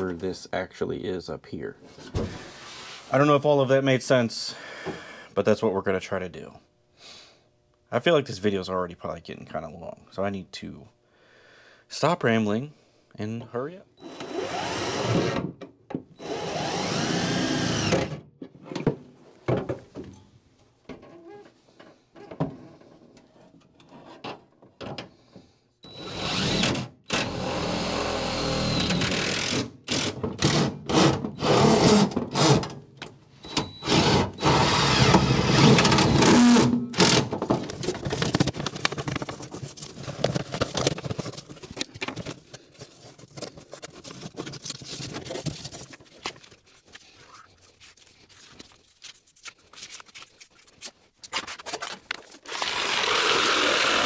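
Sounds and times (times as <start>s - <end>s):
cordless drill driving screws: 14.0s - 15.4s, 16.2s - 18.2s, 25.8s - 32.6s, 33.4s - 37.3s, 52.5s - 54.0s
handling noises: 35.1s - 52.6s.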